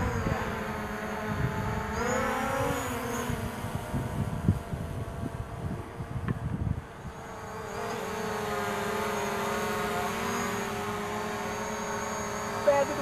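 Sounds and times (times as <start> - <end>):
wind buffeting microphone: 0.0 - 7.3
drone propellers whining: 0.0 - 13.0.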